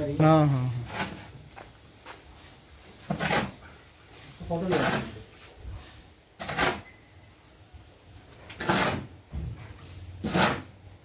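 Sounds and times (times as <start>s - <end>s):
shovel scraping on concrete: 0.5s - 1.4s, 2.3s - 7.0s, 8.2s - 10.8s.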